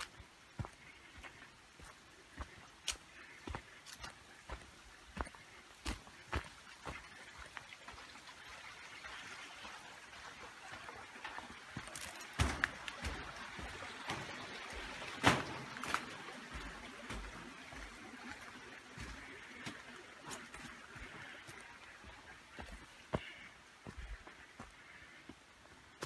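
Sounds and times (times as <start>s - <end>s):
footsteps on wooden bridge: 0.0s - 8.1s, 10.7s - 26.0s
footsteps on dirt trail: 0.0s - 8.2s, 10.2s - 26.0s
creek running: 0.0s - 26.0s.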